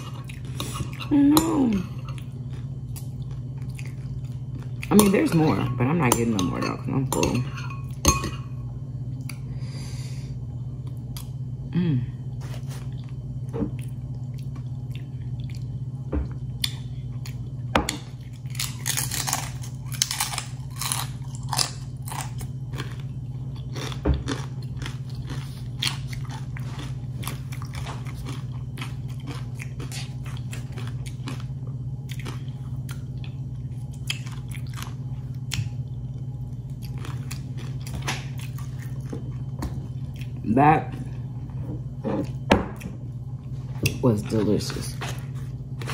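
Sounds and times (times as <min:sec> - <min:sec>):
person chewing crunchy chips: 0:00.0 - 0:05.2, 0:12.3 - 0:41.2
steady low hum: 0:00.0 - 0:45.9.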